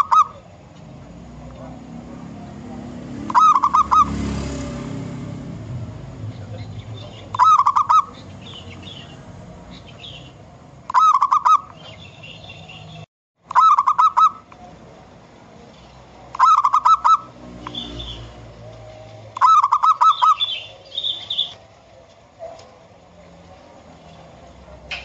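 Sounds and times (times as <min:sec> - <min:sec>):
dove trilled cooing: 0:00.0 - 0:00.6, 0:03.2 - 0:04.6, 0:06.6 - 0:09.1, 0:10.9 - 0:12.0, 0:13.5 - 0:14.6, 0:16.3 - 0:21.6.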